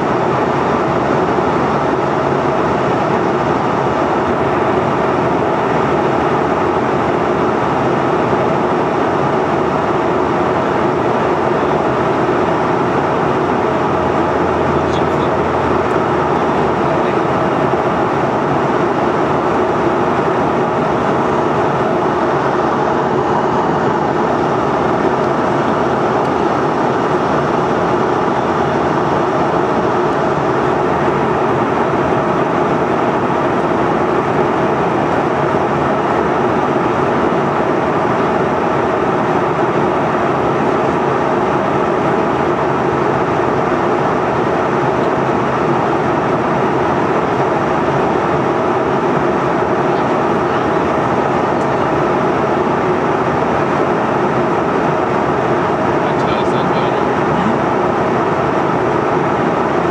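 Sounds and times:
airplane cabin engine rushing noise: 0:00.0 - 0:59.9.

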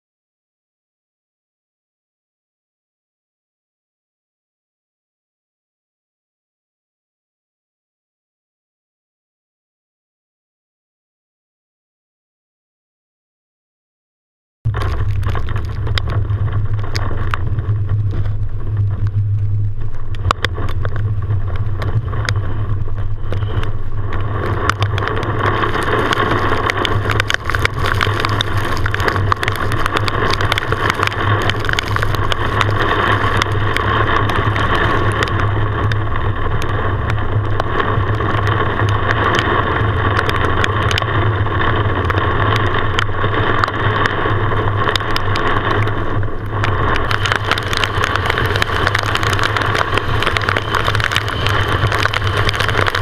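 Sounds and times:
raindrops hitting windshield: 0:14.7 - 0:53.0
vehicle engine drone: 0:14.7 - 0:53.0.

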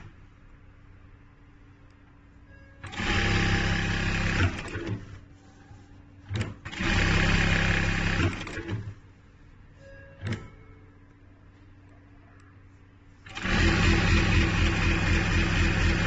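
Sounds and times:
sewing machine stitching: 0:02.8 - 0:05.2, 0:06.3 - 0:09.0, 0:13.2 - 0:16.0.

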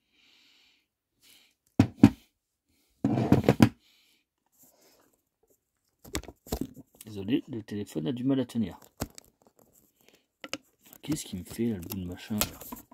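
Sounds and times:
hand tools knocking on wood: 0:01.8 - 0:02.2.

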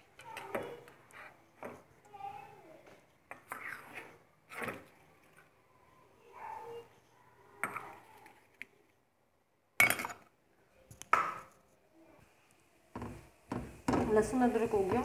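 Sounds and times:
metal spatula scraping a wok: 0:03.4 - 0:04.7.

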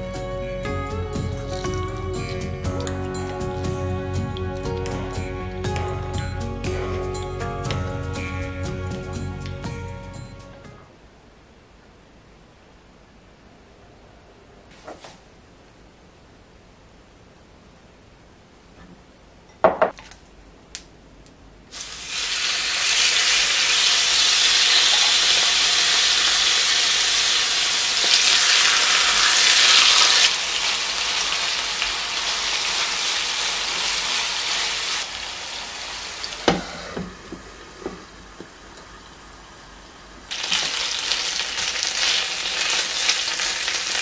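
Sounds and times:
chicken sizzling in hot oil: 0:21.7 - 0:44.0.

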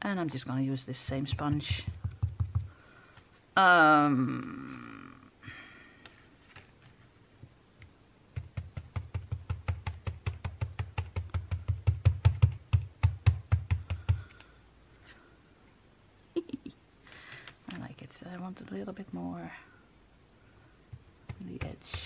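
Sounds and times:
sponge dauber tapping on paper: 0:01.0 - 0:02.8, 0:08.4 - 0:14.4, 0:20.9 - 0:22.0.

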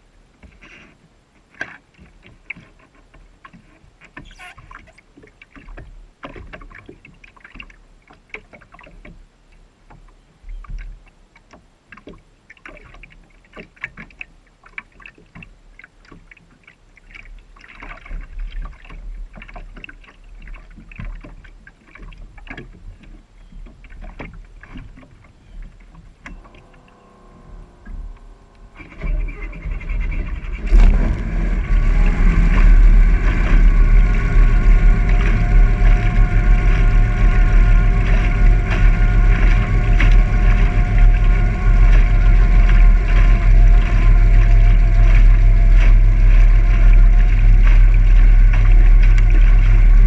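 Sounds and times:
water splashing against boat hull: 0:00.2 - 0:50.0
low rumble: 0:26.1 - 0:50.0.

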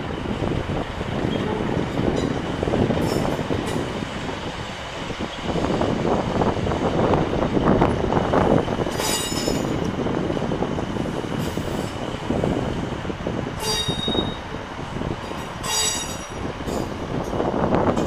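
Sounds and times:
train rumbling slowly past: 0:00.0 - 0:18.0
train wheels squealing: 0:08.9 - 0:09.7, 0:13.6 - 0:14.6, 0:15.4 - 0:16.9.

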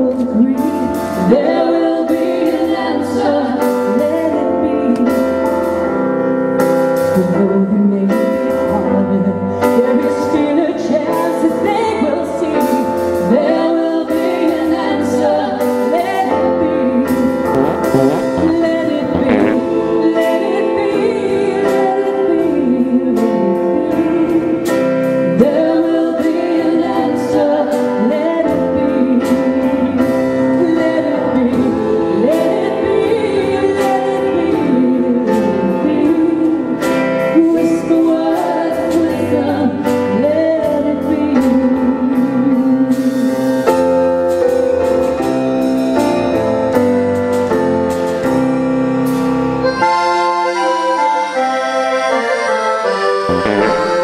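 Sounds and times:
live band playing: 0:17.3 - 0:20.5, 0:49.0 - 0:54.0.

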